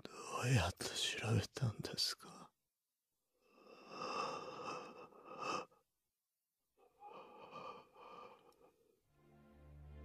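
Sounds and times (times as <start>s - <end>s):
man rasping breaths: 6.8s - 9.0s.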